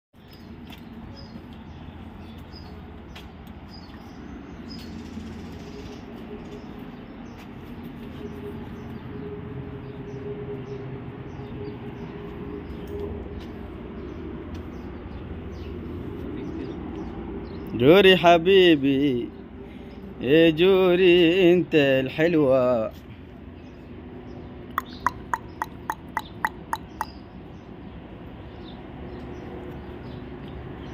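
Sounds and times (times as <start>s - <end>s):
low rumble and hum: 0.4s - 17.7s.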